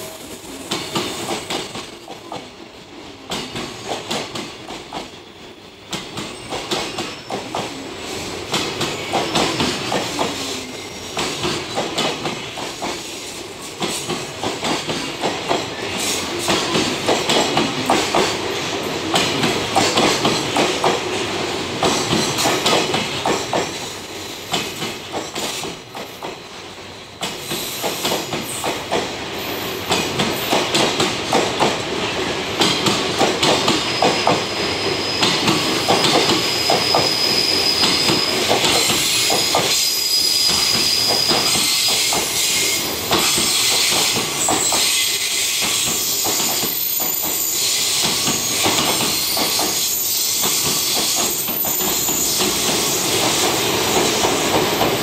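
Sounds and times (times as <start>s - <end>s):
train wheels clattering over joints: 13.8s - 26.4s, 40.4s - 55.0s
high wheel squeal: 33.8s - 53.2s.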